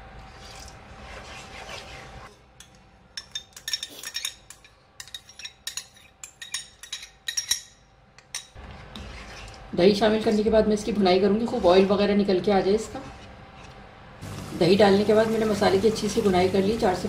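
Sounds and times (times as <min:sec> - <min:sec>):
frying hiss: 0:14.2 - 0:17.0.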